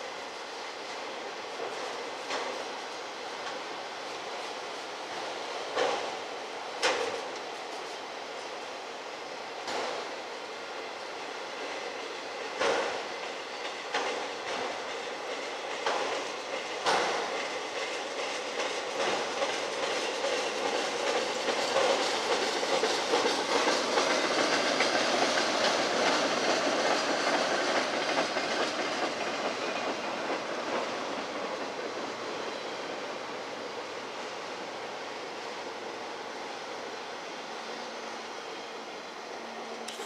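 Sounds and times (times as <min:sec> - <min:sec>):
freight train wheels rolling: 0:00.0 - 0:40.0
wheels clicking over rail joints: 0:12.6 - 0:32.7.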